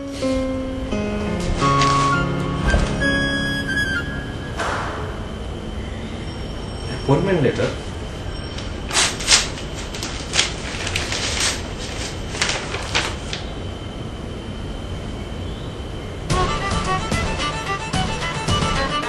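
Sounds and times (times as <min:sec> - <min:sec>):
violin music: 0:00.0 - 0:04.6, 0:16.3 - 0:19.0
paper rustling: 0:01.3 - 0:03.4, 0:08.5 - 0:13.6.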